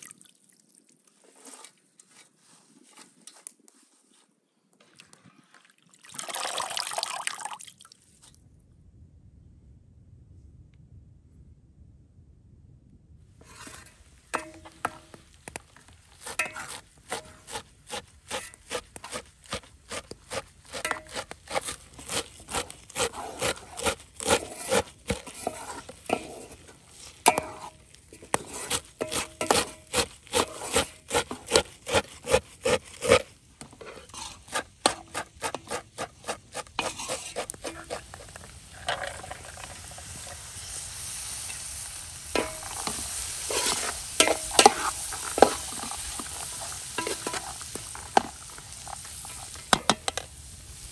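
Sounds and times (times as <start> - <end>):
food sizzling in a metal pan: 13.5 - 15.2, 22.4 - 30.9, 36.8 - 50.9
knife chopping on wooden board: 16.2 - 25.4, 28.7 - 33.3.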